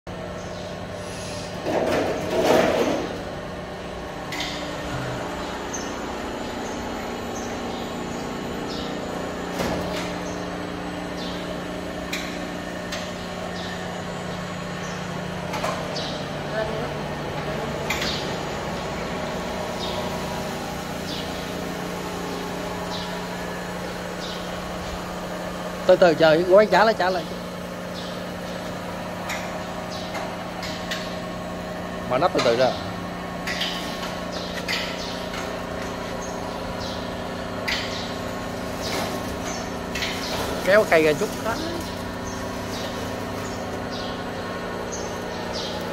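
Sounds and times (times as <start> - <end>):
motor hum: 0.1 - 45.9
short hisses: 1.0 - 1.5.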